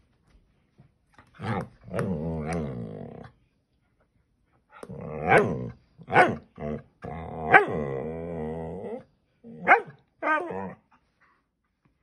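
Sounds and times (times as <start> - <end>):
dog growling grumble: 1.4 - 3.3, 6.6 - 9.6.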